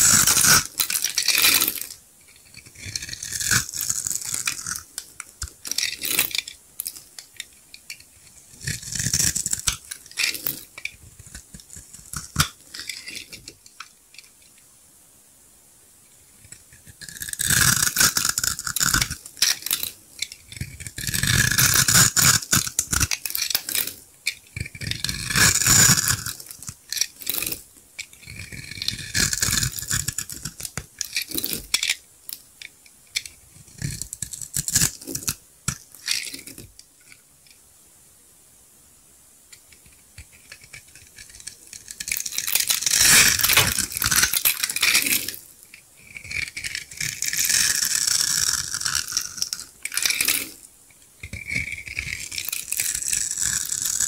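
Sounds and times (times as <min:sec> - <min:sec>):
soap cubes crunching: 0:41.9 - 0:45.3.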